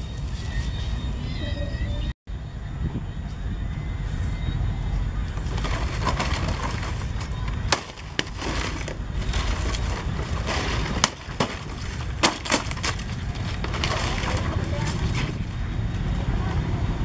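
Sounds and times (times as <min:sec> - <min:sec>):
palm fronds rustling: 0:05.2 - 0:15.6
sharp cracks of fronds: 0:05.3 - 0:15.5.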